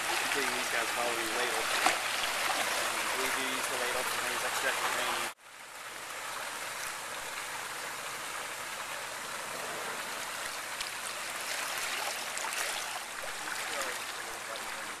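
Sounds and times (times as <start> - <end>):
small splashes and drips: 0.0 - 5.3, 10.0 - 15.0
water rushing in aquarium: 0.0 - 5.4, 6.1 - 15.0.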